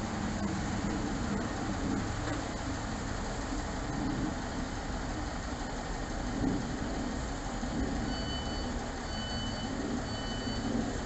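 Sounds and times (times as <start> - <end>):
diesel train idling rumble: 0.0 - 11.0
high door warning beeps: 8.1 - 10.7.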